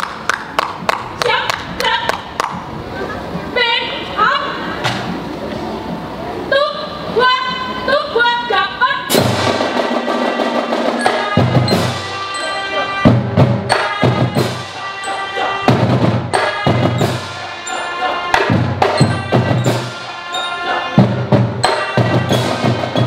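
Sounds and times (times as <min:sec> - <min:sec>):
melodica marching band playing: 0:06.6 - 0:23.0
snare drums: 0:09.1 - 0:23.0.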